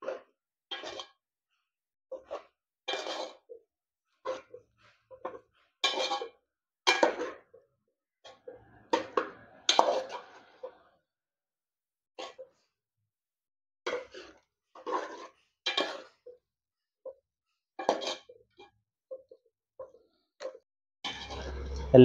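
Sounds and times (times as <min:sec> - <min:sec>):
spoon scraping metal pot: 0:05.8 - 0:06.4, 0:08.9 - 0:10.8, 0:13.9 - 0:16.2, 0:21.1 - 0:22.0.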